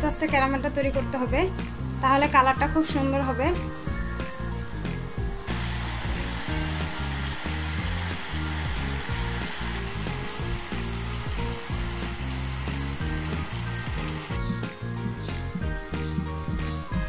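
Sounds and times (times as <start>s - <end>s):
background music with bass line: 0.0s - 17.0s
syrup boiling in a pan: 5.2s - 14.4s.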